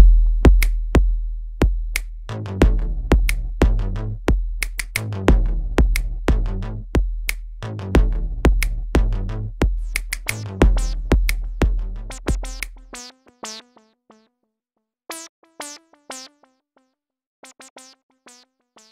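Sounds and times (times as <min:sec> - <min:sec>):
drum machine beat with bass: 0:00.0 - 0:13.0
synth notes: 0:07.8 - 0:13.0.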